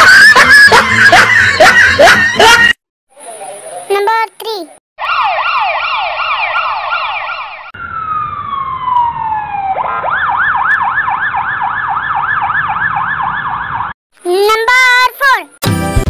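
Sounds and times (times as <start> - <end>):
electronic siren yelp: 0.0 - 2.8, 5.0 - 14.0
long falling siren tone: 5.0 - 14.0.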